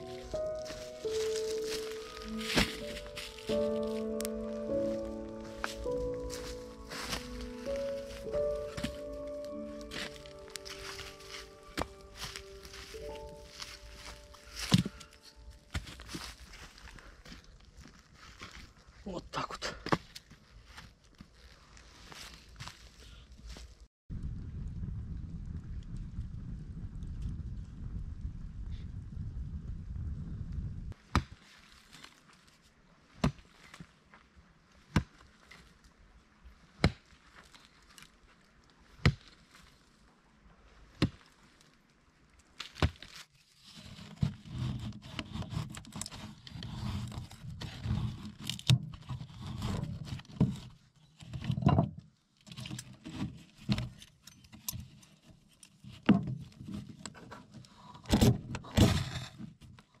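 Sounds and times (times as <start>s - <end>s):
pick striking earth: 0.0s - 16.4s, 31.0s - 31.4s, 38.9s - 39.4s, 42.6s - 43.2s, 58.1s - 59.4s.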